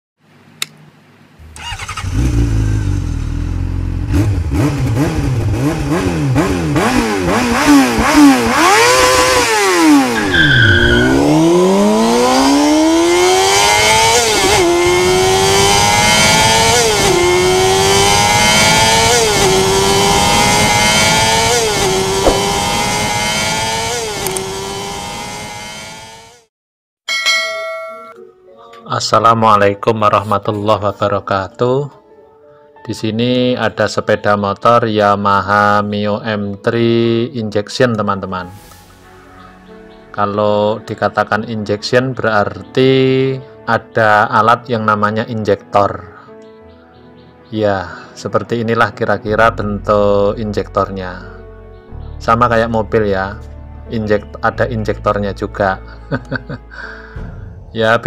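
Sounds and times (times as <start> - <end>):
high-revving engine accelerating: 1.4 - 26.5.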